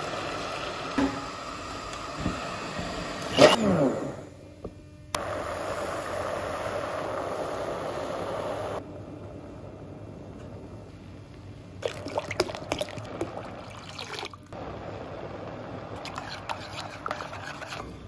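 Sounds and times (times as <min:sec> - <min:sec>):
liquid fizzing in a pot: 0:11.8 - 0:14.6, 0:16.0 - 0:18.0.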